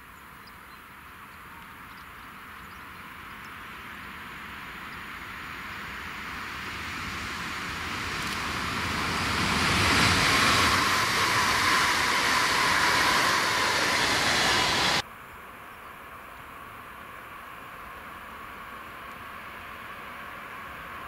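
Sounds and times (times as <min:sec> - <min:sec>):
train wheels rushing on rails: 0:03.8 - 0:15.0.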